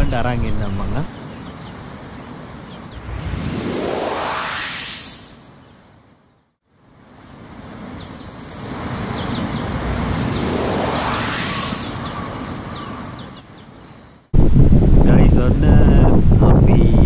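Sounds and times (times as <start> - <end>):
small birds chirping: 0.0 - 3.8, 5.5 - 14.3
outdoor rushing noise: 2.8 - 5.6, 8.8 - 13.2.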